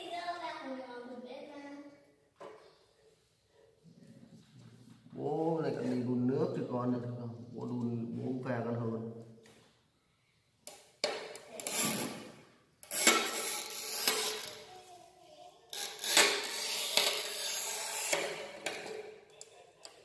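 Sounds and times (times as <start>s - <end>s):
tile cutter scraping tile: 11.6s - 14.6s, 15.7s - 18.6s.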